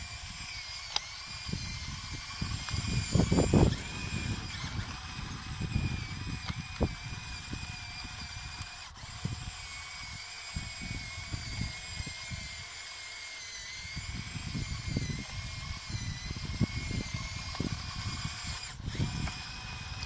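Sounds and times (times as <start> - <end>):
electric motors whining: 0.0 - 20.0.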